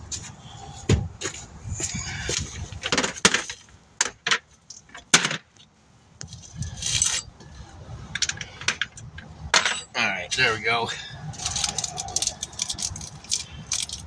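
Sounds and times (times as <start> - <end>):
metal tools clinking: 6.6 - 7.3, 8.2 - 10.1, 11.4 - 14.0.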